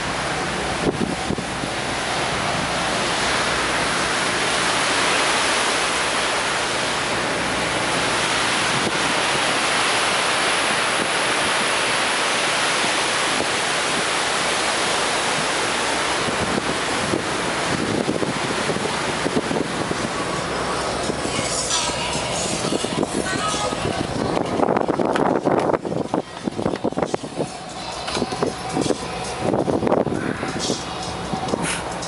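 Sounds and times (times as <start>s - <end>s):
wind buffeting microphone: 0.0s - 21.4s, 22.1s - 32.0s
ship wake and sea rushing: 0.0s - 32.0s.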